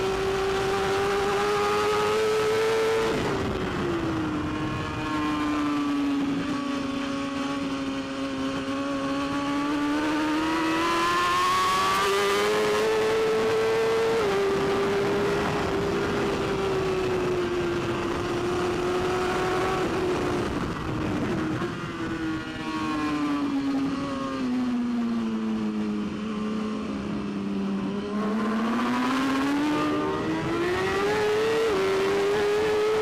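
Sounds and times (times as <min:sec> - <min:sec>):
wind rush: 0:00.0 - 0:24.5
motorcycle engine revving: 0:00.0 - 0:33.0.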